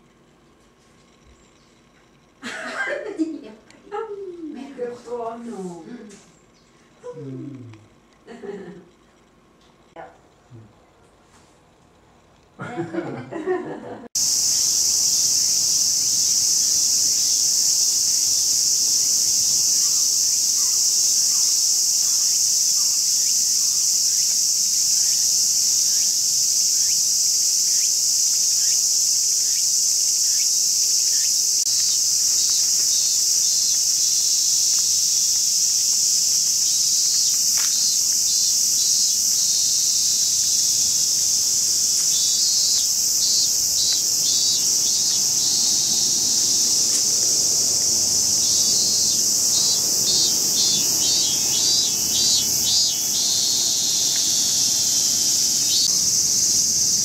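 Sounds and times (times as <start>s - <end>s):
cicadas buzzing: 0.0s - 8.9s, 14.2s - 57.0s
great tit singing: 14.2s - 35.5s, 36.2s - 56.0s.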